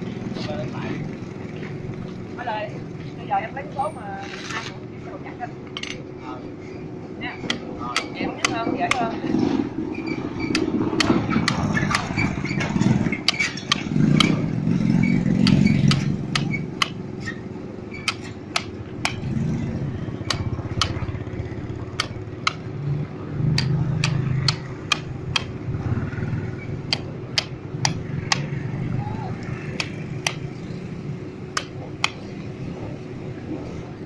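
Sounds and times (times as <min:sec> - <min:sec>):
engine rumbling: 0:00.0 - 0:34.0
hammer striking steel chisel: 0:07.4 - 0:09.1, 0:10.4 - 0:14.4, 0:15.4 - 0:19.3, 0:20.2 - 0:21.0, 0:21.9 - 0:22.7, 0:23.5 - 0:25.6, 0:26.8 - 0:28.6, 0:29.5 - 0:30.5, 0:31.5 - 0:32.3.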